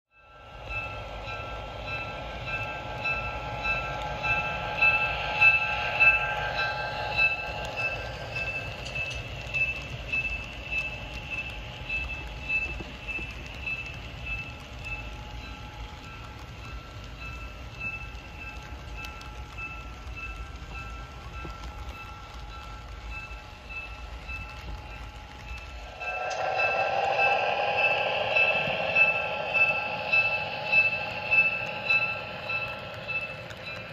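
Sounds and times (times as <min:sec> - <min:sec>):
model train mechanical whine: 0:00.2 - 0:33.9
low rumble: 0:24.4 - 0:33.9.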